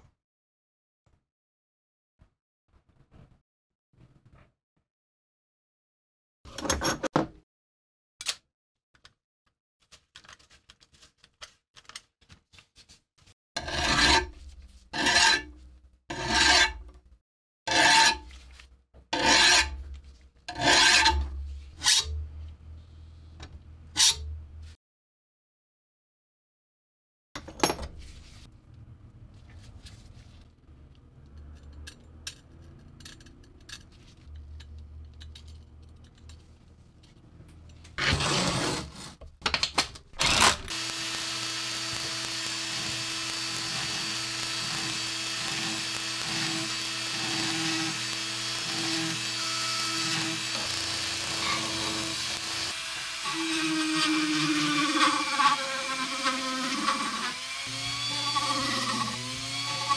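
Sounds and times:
drill motor burst: 0:40.2 - 0:59.9.

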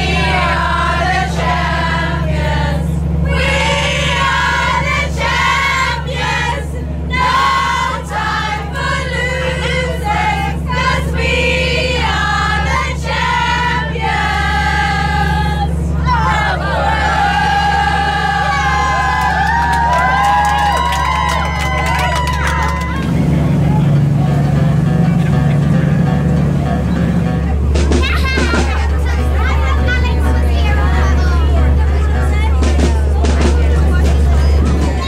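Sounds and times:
women singing together: 0:00.0 - 0:19.0
boat engine drone: 0:00.0 - 0:35.0.

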